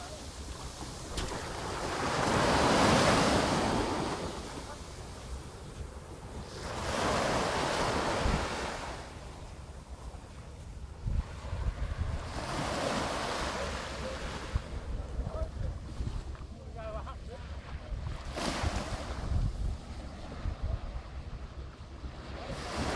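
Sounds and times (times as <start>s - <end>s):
surf washing up beach: 0.0s - 22.9s
wind buffeting microphone: 7.6s - 13.2s, 14.4s - 17.0s, 17.6s - 22.9s.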